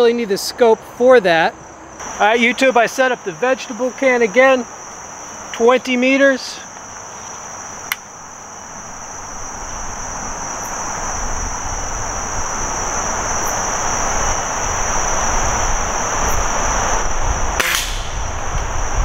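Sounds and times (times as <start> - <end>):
insects buzzing: 0.0 - 19.0
sharp click: 7.9 - 8.1, 17.6 - 18.2
rushing noise with low rumble: 8.7 - 19.0.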